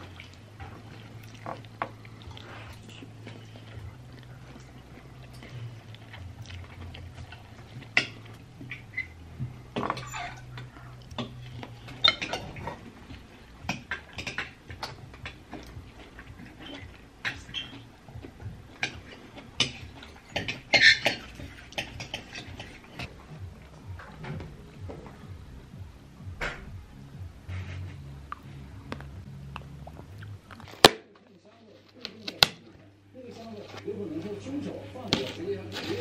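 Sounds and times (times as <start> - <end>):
cutlery clinking on plate: 18.8 - 23.1.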